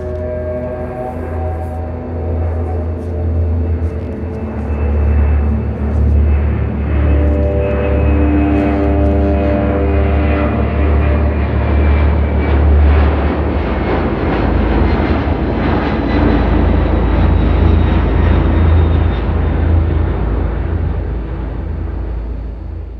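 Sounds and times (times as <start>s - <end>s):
aircraft engine rumble: 0.0s - 22.9s.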